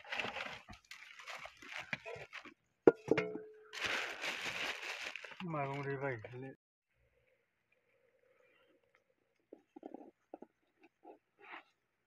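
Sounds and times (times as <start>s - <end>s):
plastic bag crinkling: 3.8s - 5.9s.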